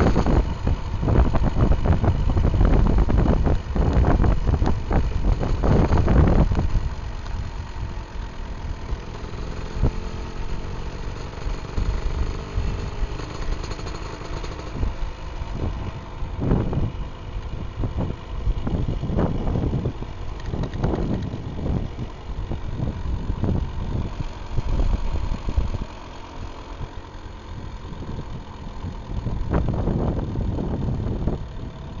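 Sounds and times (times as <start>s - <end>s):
wind buffeting microphone: 0.0s - 7.6s, 14.4s - 26.0s, 27.6s - 32.0s
motorcycle engine running: 0.0s - 32.0s.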